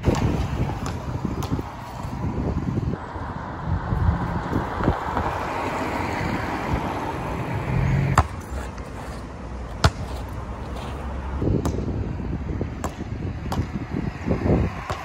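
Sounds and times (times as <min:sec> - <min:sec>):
basketball bouncing on wet tarmac: 0:00.1 - 0:01.6, 0:08.2 - 0:08.5, 0:09.8 - 0:10.2, 0:14.8 - 0:15.0.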